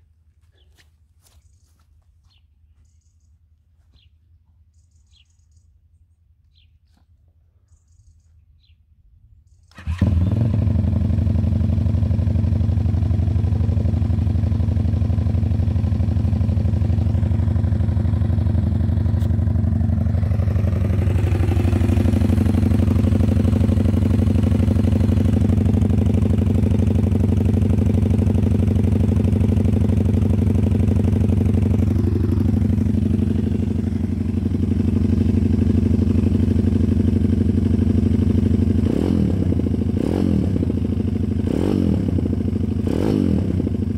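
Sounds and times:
motorcycle engine running: 0:09.8 - 0:43.9.

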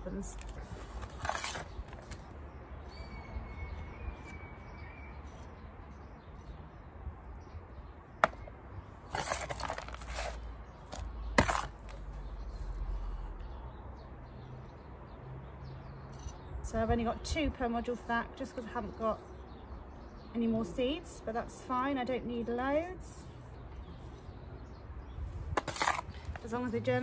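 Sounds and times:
gritty scrapes and rustles: 0:00.1 - 0:02.4, 0:09.0 - 0:12.8, 0:25.3 - 0:27.0
trowel scraping plastic trays: 0:00.4 - 0:02.2, 0:09.1 - 0:12.0, 0:25.6 - 0:26.6.

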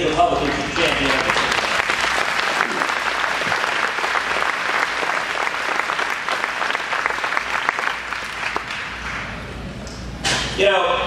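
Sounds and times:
large audience applauding: 0:00.0 - 0:09.5.

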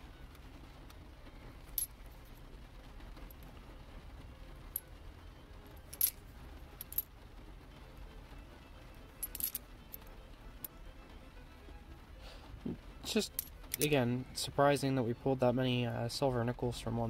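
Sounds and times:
low steady hum: 0:00.0 - 0:17.0
coins clinking in a palm: 0:05.9 - 0:07.1, 0:09.2 - 0:10.1, 0:13.2 - 0:14.0.

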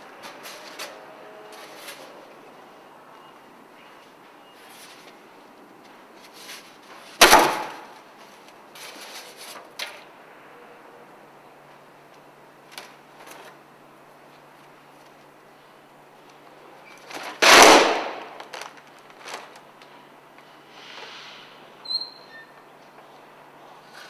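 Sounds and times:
steady hiss: 0:20.4 - 0:21.8.

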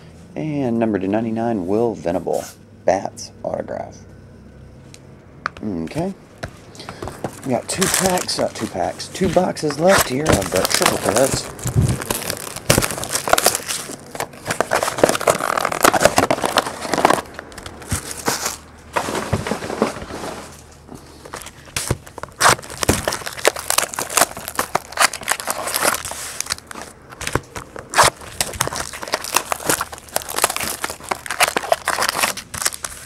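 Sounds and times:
foil pack crinkling: 0:06.7 - 0:33.0.

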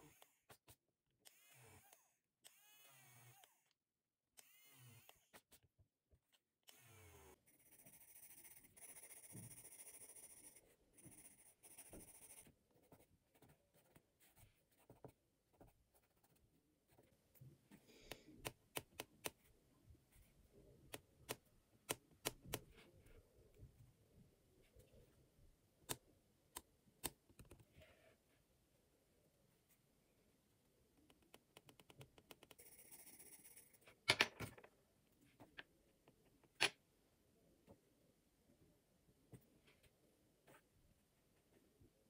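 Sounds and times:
eraser pen whirring: 0:01.2 - 0:03.7, 0:06.6 - 0:12.5
pencil scratching on paper: 0:07.4 - 0:17.2, 0:32.4 - 0:33.9.

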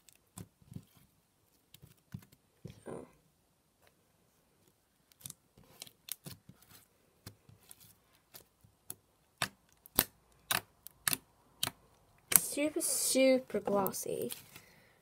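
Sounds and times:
slime clicking and popping: 0:08.8 - 0:12.5.

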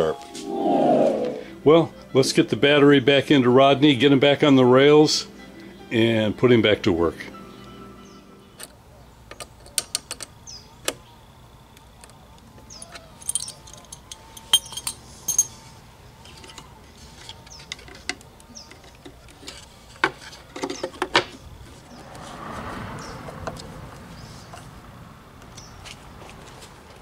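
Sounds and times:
metal hand tools clinking: 0:12.7 - 0:15.7.

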